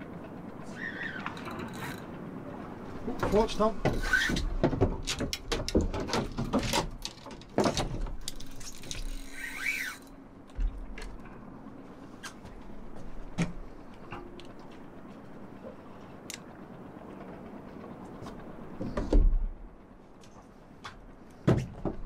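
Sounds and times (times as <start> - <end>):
fishing rod and reel clicks: 1.2 - 2.1, 8.2 - 10.2.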